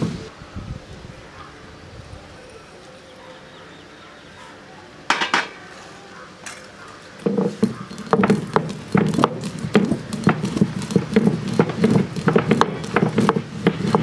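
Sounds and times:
stone roller grinding: 7.2s - 14.0s.

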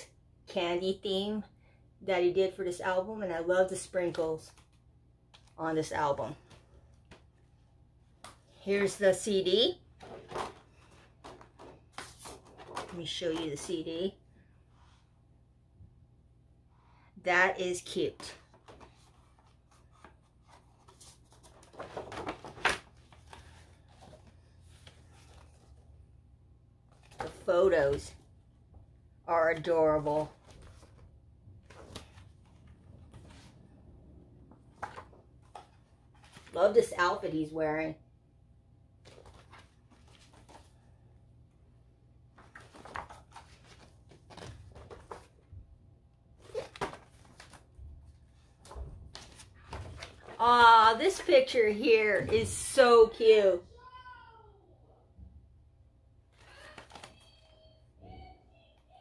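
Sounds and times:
paper pages rustling: 10.0s - 13.0s, 18.4s - 25.9s, 29.5s - 33.6s, 34.5s - 36.8s, 39.0s - 40.9s, 42.3s - 45.4s, 46.4s - 51.3s, 56.3s - 57.6s.

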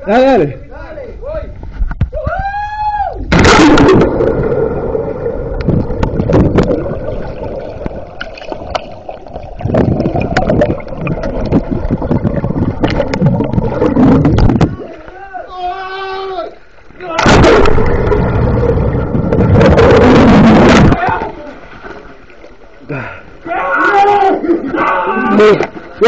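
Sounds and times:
loud splash into water: 3.3s - 9.0s, 17.2s - 21.4s
muffled underwater bubbling: 3.3s - 15.1s, 17.2s - 21.1s
sharp underwater clicks and knocks: 9.6s - 14.8s
man yelling: 15.1s - 17.2s, 23.4s - 25.6s.

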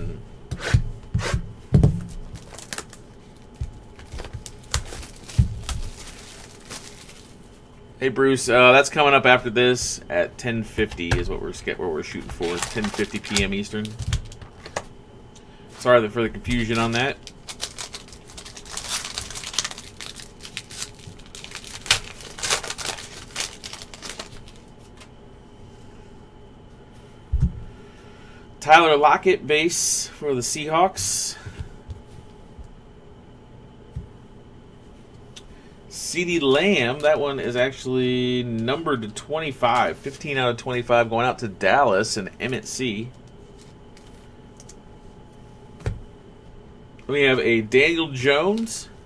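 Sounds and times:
cardboard box knocking on table: 1.7s - 2.1s
plastic wrap crinkling: 2.0s - 7.6s, 12.0s - 14.9s, 16.4s - 25.1s.

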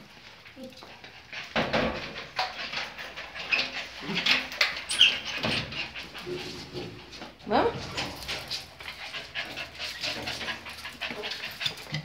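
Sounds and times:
knocks and clatter: 1.3s - 7.1s
dogs yelping and whining: 2.4s - 6.6s.

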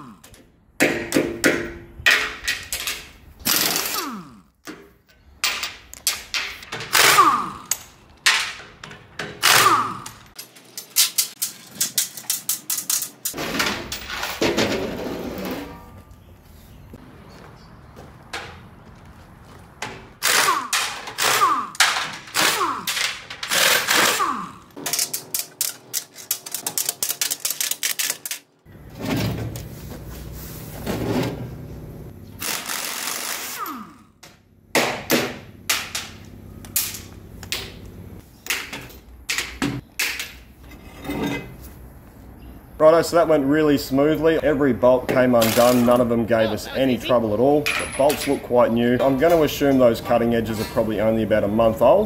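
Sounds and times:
pneumatic impact wrench hammering: 3.4s - 4.2s, 6.1s - 12.0s, 20.2s - 25.7s, 32.4s - 34.0s.

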